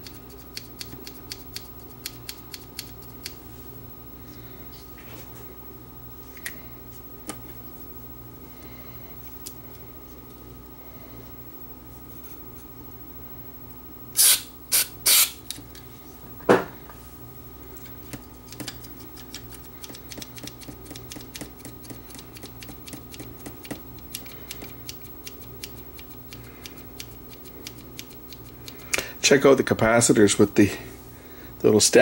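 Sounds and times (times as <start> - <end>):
aerosol spray hissing: 14.2 - 15.4.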